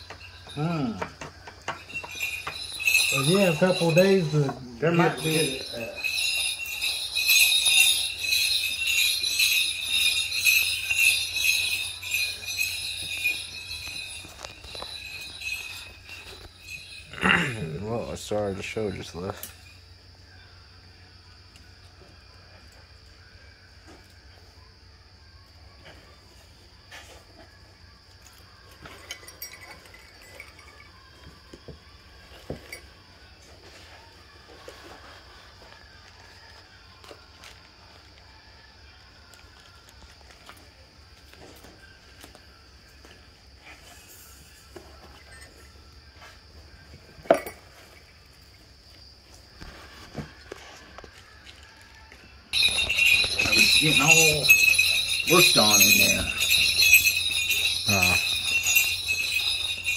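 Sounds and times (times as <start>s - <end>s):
small clicks and clinks: 0.0s - 4.6s, 5.2s - 17.1s
dance bells jingling: 0.0s - 20.0s, 28.9s - 31.5s, 52.5s - 59.9s.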